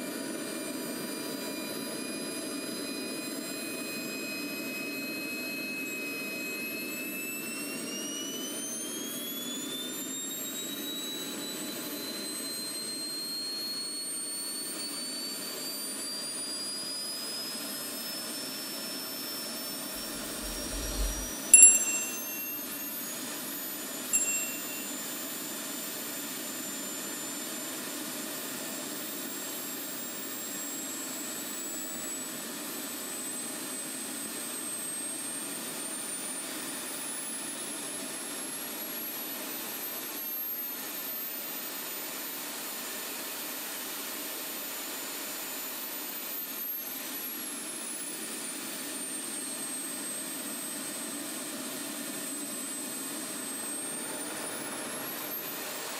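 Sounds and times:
jet turbine whining: 0:19.9 - 0:22.8, 0:53.5 - 0:55.9
short beep: 0:20.0 - 0:22.8, 0:24.2 - 0:25.0.

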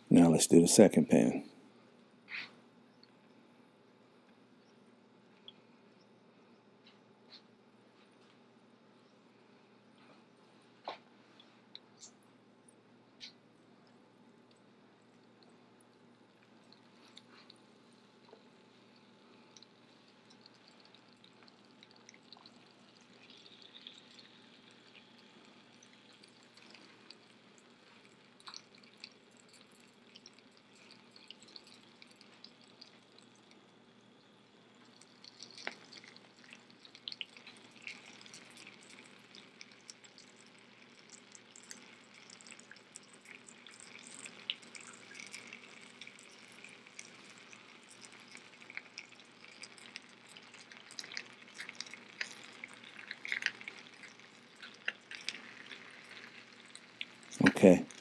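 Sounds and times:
crackles and ticks: 0:02.3 - 0:03.4, 0:04.2 - 0:08.4, 0:10.8 - 0:58.0
oil sizzling in skillet: 0:34.8 - 0:57.4.

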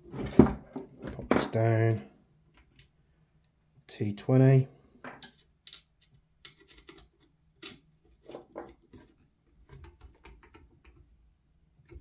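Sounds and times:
small parts being handled: 0:05.1 - 0:10.6.

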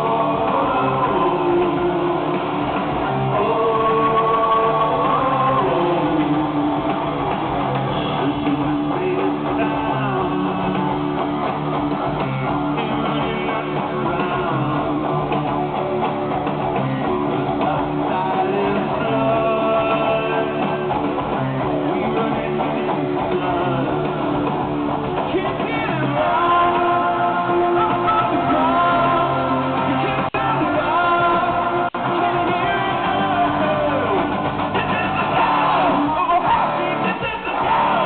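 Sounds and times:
rock band playing live: 0:00.0 - 0:38.0.

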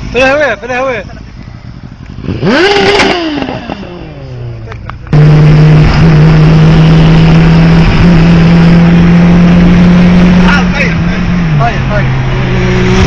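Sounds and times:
car cabin road drone: 0:00.0 - 0:13.0
motorcycle engine winding down: 0:01.0 - 0:07.7.

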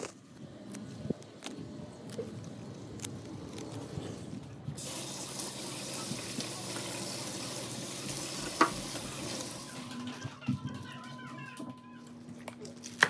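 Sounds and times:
rustling stalks: 0:00.0 - 0:04.8
faucet running into sink: 0:04.8 - 0:10.1.

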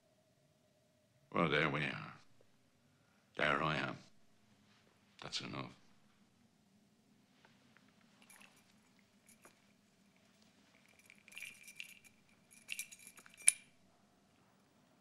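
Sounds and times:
small whistle clinking: 0:10.7 - 0:13.8.

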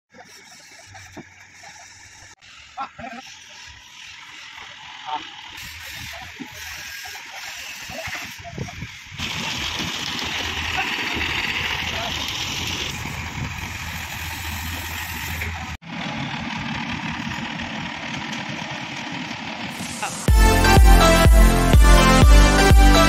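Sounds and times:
workers' voices: 0:00.1 - 0:13.0, 0:19.7 - 0:20.3
diesel engine running: 0:00.8 - 0:23.0
electronic music: 0:19.7 - 0:23.0.

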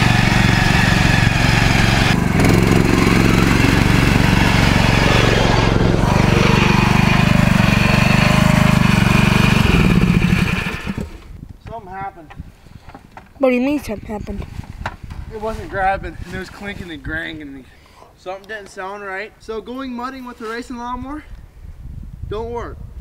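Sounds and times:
riding lawn mower engine running hard: 0:00.0 - 0:11.4.

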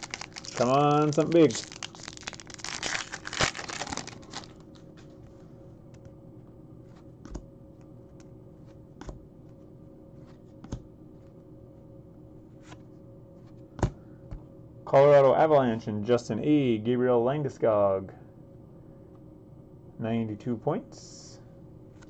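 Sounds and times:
foil wrapper crinkling: 0:00.0 - 0:04.9
faint steady hum: 0:00.0 - 0:22.0.

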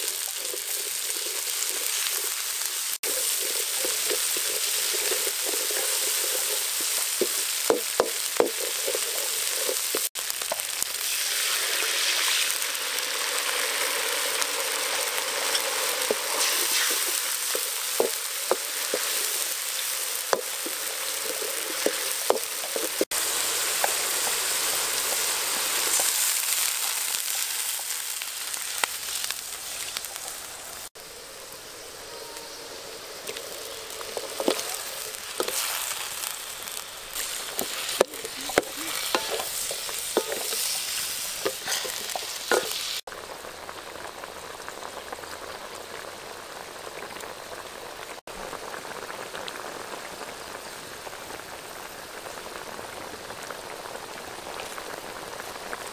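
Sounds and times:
spice paste sizzling in oil: 0:00.0 - 0:55.9
sharp pops and crackles: 0:02.9 - 0:11.3, 0:15.5 - 0:24.4, 0:25.0 - 0:31.1, 0:33.2 - 0:45.9.

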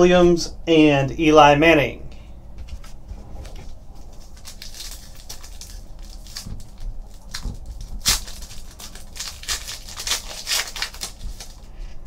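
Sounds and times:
foil pack tearing and crinkling: 0:04.0 - 0:11.7.

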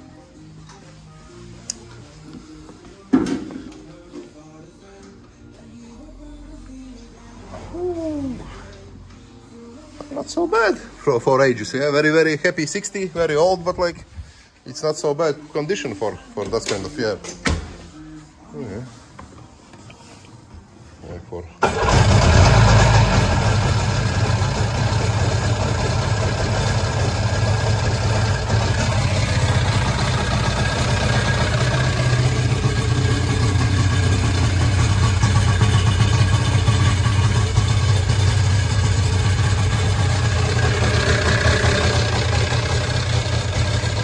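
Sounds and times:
jet ski engine idling: 0:21.8 - 0:44.0.

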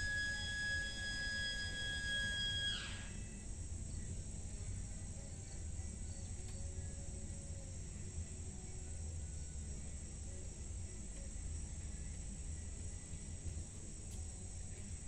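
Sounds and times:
warning siren winding down: 0:00.0 - 0:03.2.

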